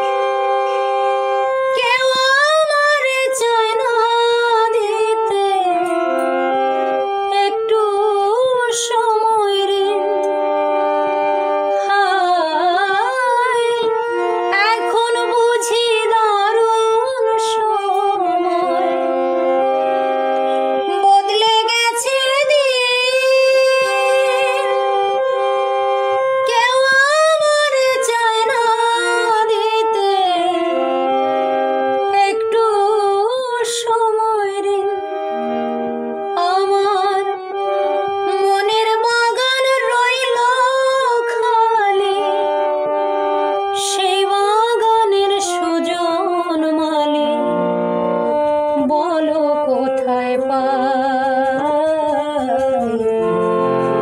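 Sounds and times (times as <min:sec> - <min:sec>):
harmonium chords: 0:00.0 - 0:54.0
woman singing with vibrato: 0:01.7 - 0:06.2, 0:07.3 - 0:10.3, 0:11.8 - 0:19.1, 0:20.9 - 0:25.0, 0:26.4 - 0:30.8, 0:32.1 - 0:35.0, 0:36.4 - 0:37.5, 0:38.3 - 0:42.5, 0:43.8 - 0:47.5, 0:48.8 - 0:53.4.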